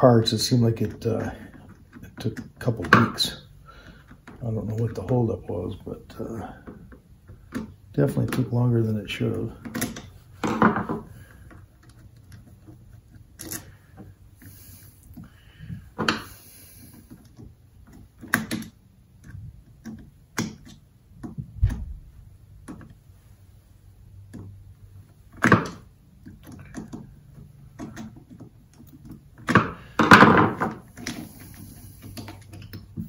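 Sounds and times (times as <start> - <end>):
faint steady hum: 0.0 - 33.0
metal parts clicking and knocking: 9.2 - 16.4, 24.3 - 33.0.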